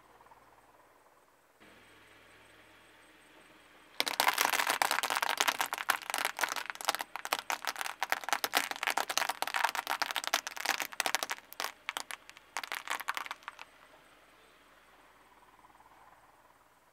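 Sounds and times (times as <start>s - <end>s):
brittle pieces crushed under tyre: 4.0s - 13.7s.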